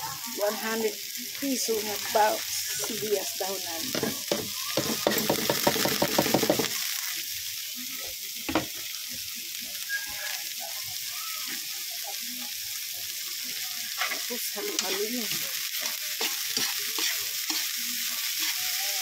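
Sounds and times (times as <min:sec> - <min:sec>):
vegetables sizzling in wok: 0:00.0 - 0:19.0
scraping strokes in wok: 0:13.8 - 0:19.0.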